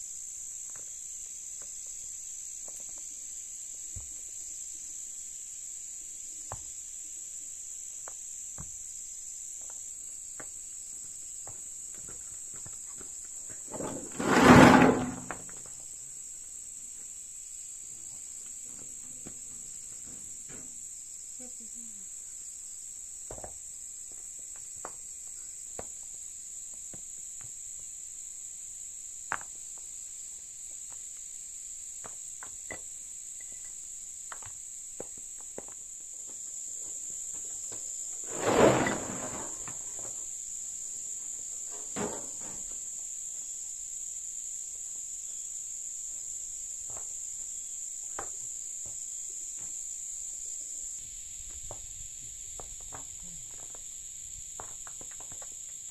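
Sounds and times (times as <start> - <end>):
rocks tipped from a wheelbarrow: 13.7 - 15.6, 38.2 - 40.2, 41.7 - 42.8
high insect drone: 14.5 - 55.9.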